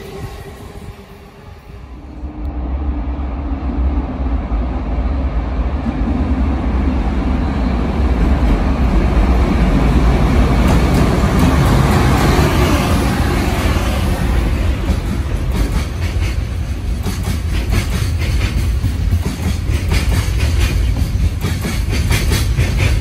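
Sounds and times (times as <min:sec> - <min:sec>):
electric locomotive running: 0:06.7 - 0:23.0.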